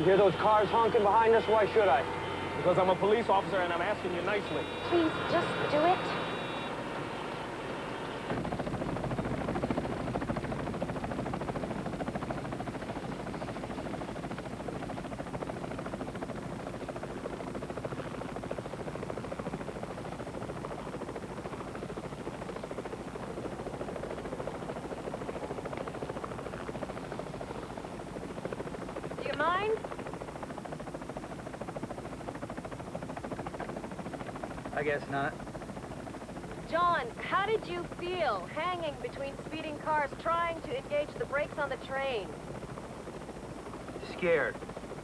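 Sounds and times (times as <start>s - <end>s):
fire truck engine and road noise: 0.0s - 8.4s.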